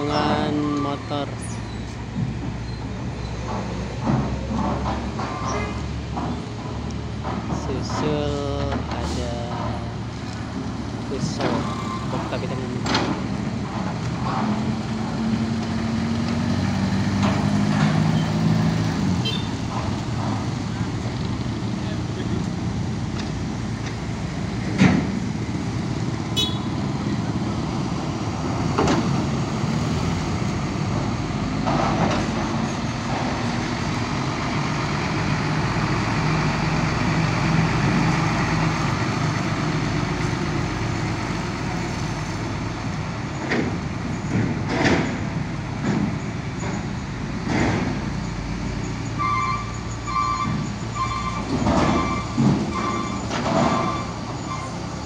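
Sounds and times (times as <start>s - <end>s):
diesel engines rumbling: 0.0s - 55.0s
truck passing: 0.0s - 55.0s
metal clanks and thumps: 3.4s - 10.0s, 11.2s - 14.8s, 22.4s - 25.4s, 30.9s - 34.0s, 43.3s - 48.0s, 51.4s - 54.1s.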